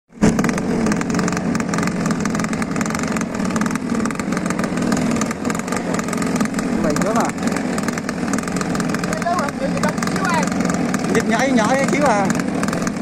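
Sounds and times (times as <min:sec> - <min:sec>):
engine running with rapid pulsing: 0:00.1 - 0:13.0.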